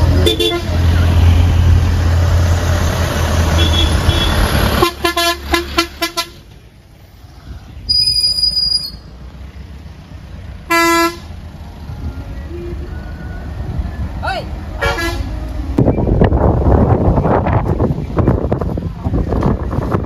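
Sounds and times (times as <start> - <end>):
vehicle engine rumbling past: 0.0 - 20.0.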